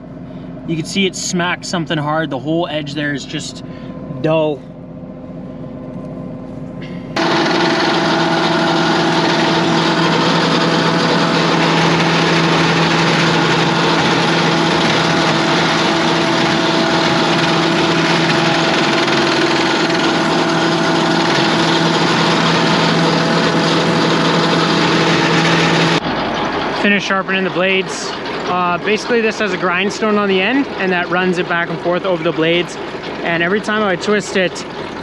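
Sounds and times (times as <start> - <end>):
low hum: 0.0 - 35.0
knife drum whirring: 7.2 - 35.0.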